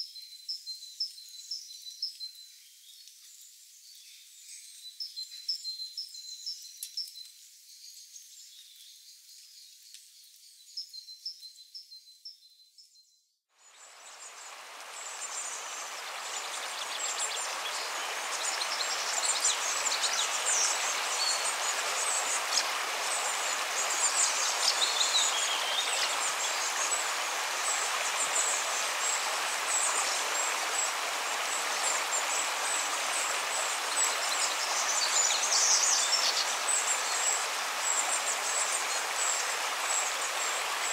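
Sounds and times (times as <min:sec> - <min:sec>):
stream running over stones: 0:13.6 - 0:40.9.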